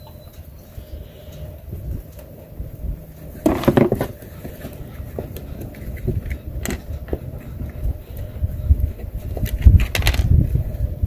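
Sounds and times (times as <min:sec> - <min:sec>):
low wind rumble: 0:00.0 - 0:11.0
small plastic parts clattering: 0:03.4 - 0:04.2.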